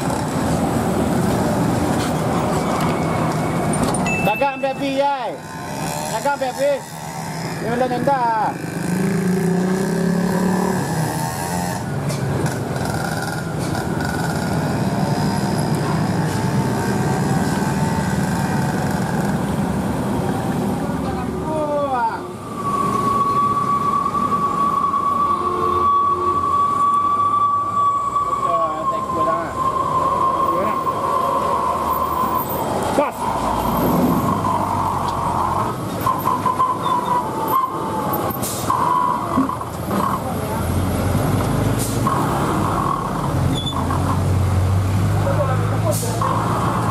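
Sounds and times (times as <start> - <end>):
car and motorcycle engines: 0.0 - 25.3, 26.5 - 46.9
high-pitched squeal: 21.9 - 40.5.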